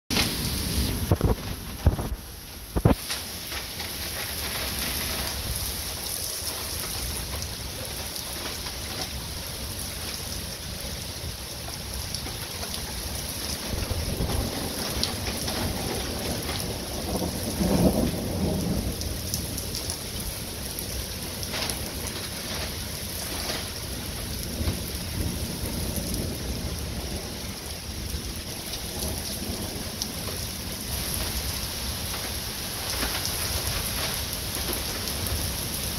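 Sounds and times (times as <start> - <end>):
rain falling on street: 0.1 - 35.9
thunder rumbling: 0.1 - 35.9
sharp thunder crack: 13.6 - 19.1.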